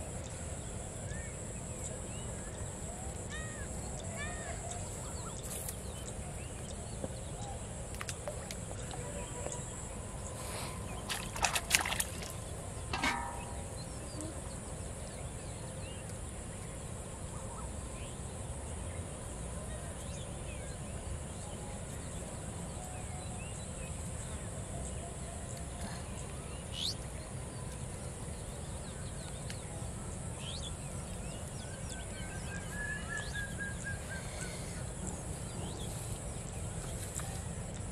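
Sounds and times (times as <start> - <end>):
faint bird chirps: 0.2 - 18.2, 28.6 - 37.7.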